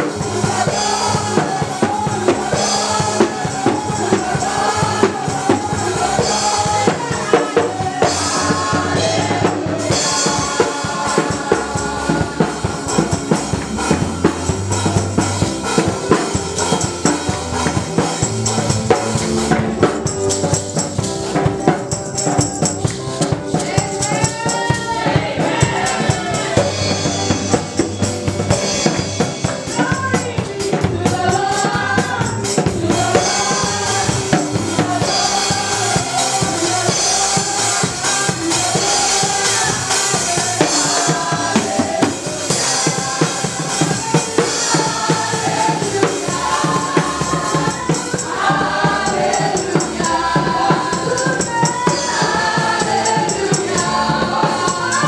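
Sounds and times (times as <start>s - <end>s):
woman singing lead: 0.0s - 13.3s, 23.4s - 27.5s, 29.6s - 55.0s
backing singers: 0.0s - 16.8s, 23.4s - 55.0s
drum kit beat: 0.0s - 55.0s
keyboard: 0.0s - 55.0s.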